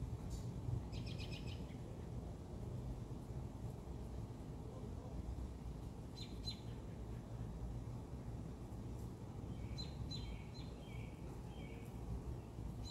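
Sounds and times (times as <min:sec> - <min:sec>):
bird chirping: 0:00.9 - 0:01.9, 0:06.2 - 0:06.8, 0:09.5 - 0:12.9.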